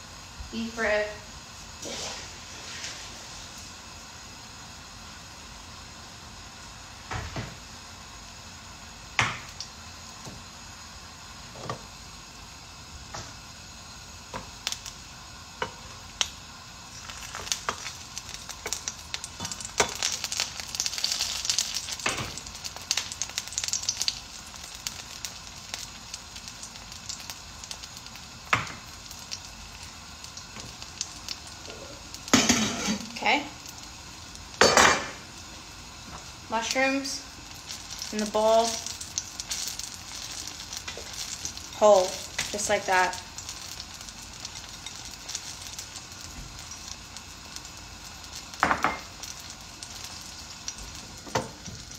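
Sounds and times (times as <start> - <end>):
meat sizzling in a pan: 0.0 - 51.9
cookware clattering: 32.4 - 33.1.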